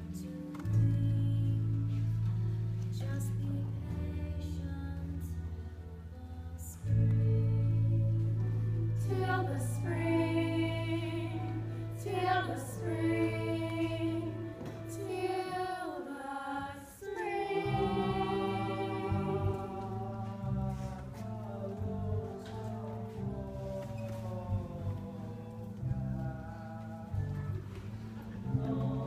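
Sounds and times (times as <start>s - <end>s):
low held accompaniment: 0.0s - 29.0s
women's chorus singing: 9.0s - 25.5s, 28.3s - 29.0s.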